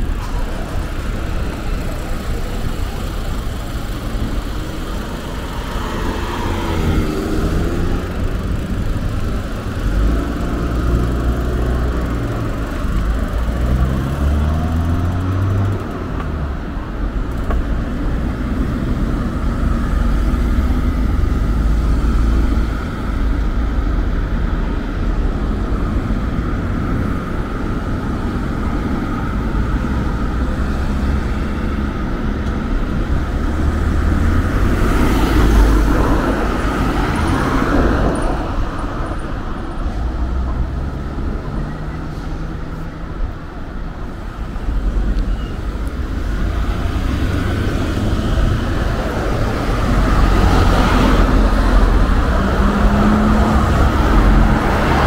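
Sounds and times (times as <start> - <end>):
road traffic: 0.0 - 55.0
vehicle passing close: 45.6 - 55.0.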